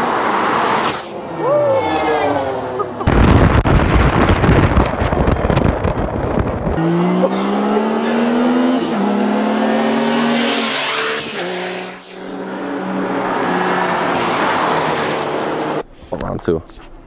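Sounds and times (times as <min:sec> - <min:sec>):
wind on microphone: 0:03.0 - 0:06.8
race car engine revving: 0:05.9 - 0:15.8.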